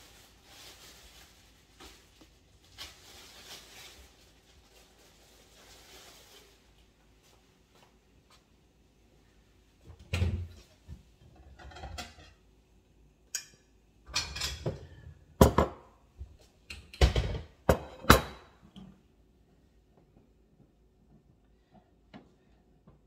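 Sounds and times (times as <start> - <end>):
pots and utensils clanking: 10.2 - 12.4, 13.3 - 15.8, 17.0 - 18.6.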